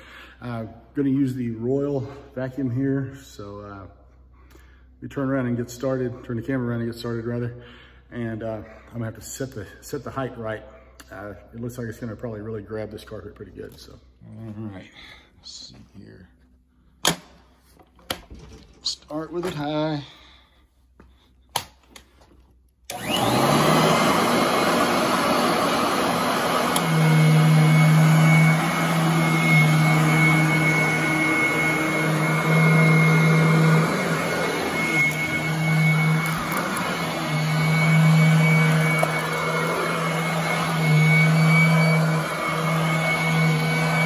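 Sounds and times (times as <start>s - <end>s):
vacuum cleaner running on carpet: 22.9s - 44.0s.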